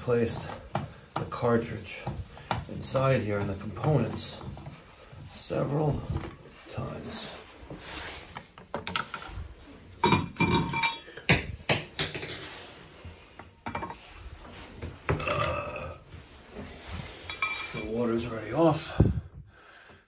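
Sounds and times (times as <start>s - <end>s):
metal objects clinking: 10.1s - 11.3s, 17.3s - 17.9s.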